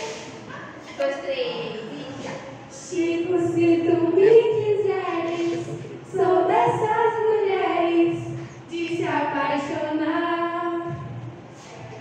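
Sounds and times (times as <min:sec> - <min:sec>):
girls singing long held notes: 0:02.8 - 0:11.2.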